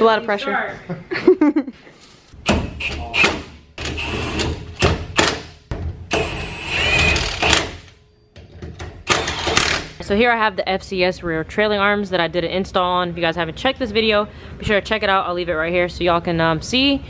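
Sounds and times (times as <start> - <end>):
impact wrench whining: 2.4 - 8.0, 9.0 - 10.0.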